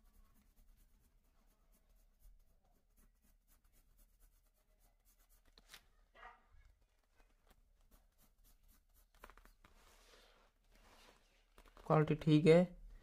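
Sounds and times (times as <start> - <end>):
pencil scratching on paper: 0.0 - 10.0.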